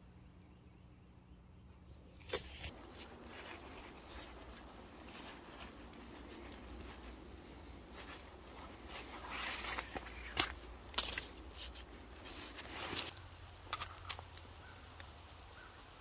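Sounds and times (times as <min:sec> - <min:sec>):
faint steady hiss: 0:00.0 - 0:16.0
cord and fabric rustling: 0:02.2 - 0:13.2.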